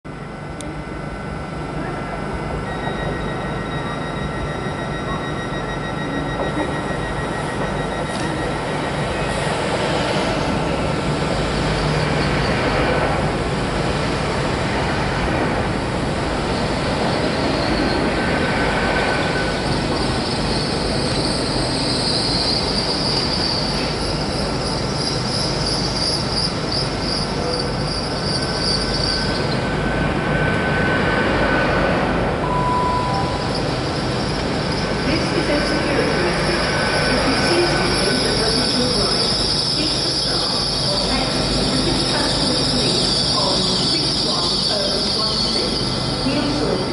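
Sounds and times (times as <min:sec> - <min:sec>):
short beep: 0:02.6 - 0:09.3, 0:32.4 - 0:33.7
high-pitched squeal: 0:16.6 - 0:29.7, 0:32.4 - 0:46.9
train wheels rumbling: 0:33.1 - 0:46.9.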